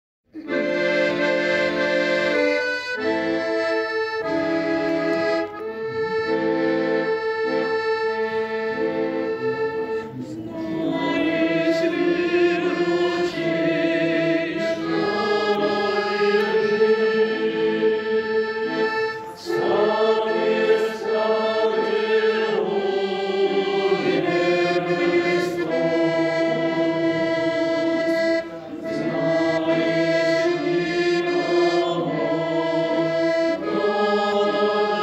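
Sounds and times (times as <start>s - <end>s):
accordion playing chords: 0.3s - 35.0s
person singing with vibrato: 8.2s - 35.0s.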